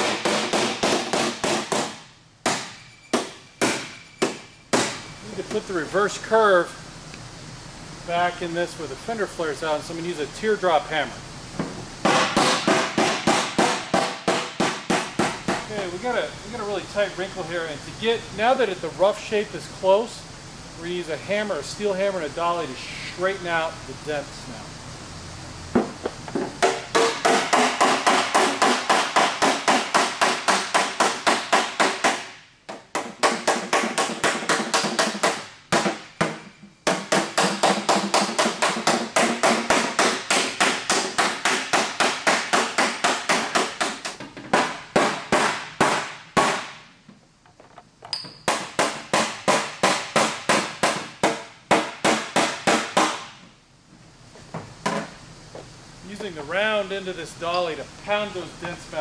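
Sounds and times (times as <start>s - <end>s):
hammer beating metal panel: 0.0s - 5.0s, 26.6s - 46.7s.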